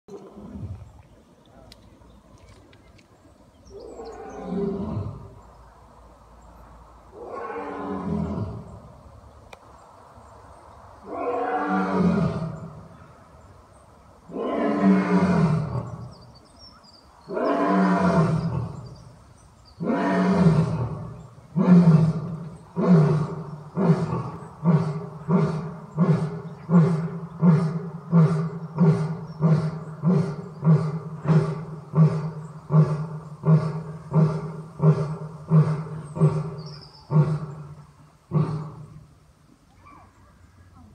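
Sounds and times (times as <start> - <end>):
lion roaring: 19.8 - 39.0.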